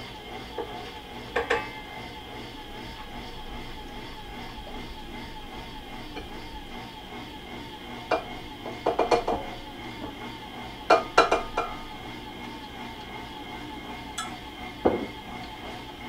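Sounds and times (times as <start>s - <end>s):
stand mixer humming: 0.0s - 16.0s.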